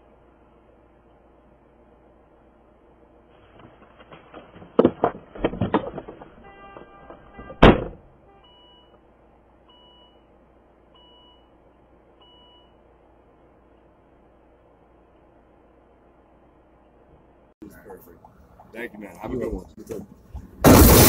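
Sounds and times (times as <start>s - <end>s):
car door slamming: 7.4s - 8.0s.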